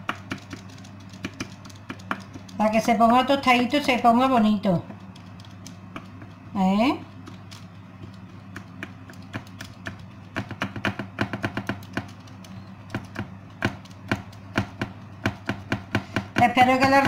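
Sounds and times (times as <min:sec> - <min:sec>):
fork tapping on baking tray: 0:08.0 - 0:12.2.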